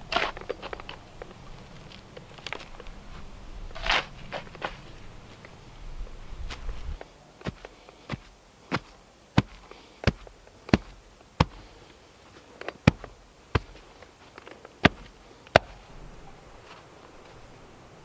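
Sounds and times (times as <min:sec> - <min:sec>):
hand tamper pounding dirt: 0:06.9 - 0:15.8.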